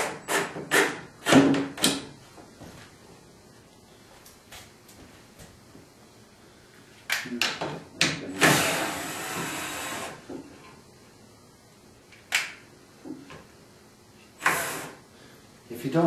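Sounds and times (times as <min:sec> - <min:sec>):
power screwdriver driving screw: 0:08.4 - 0:10.2, 0:14.4 - 0:14.9.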